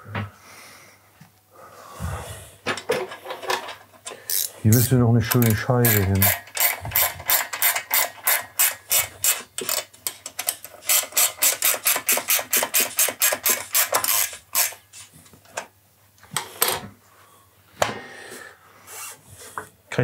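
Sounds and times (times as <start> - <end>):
ratchet wrench clicking: 4.3 - 14.8.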